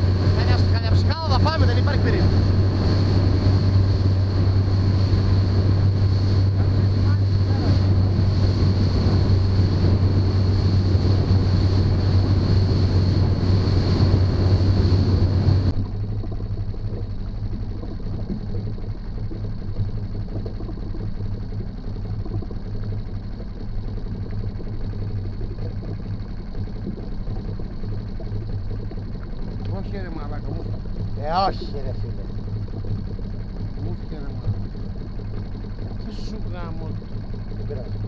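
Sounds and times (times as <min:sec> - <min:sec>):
rushing water: 0:00.0 - 0:15.7
low hum: 0:00.0 - 0:38.0
outboard motor running: 0:00.0 - 0:38.0
wind: 0:00.0 - 0:38.0.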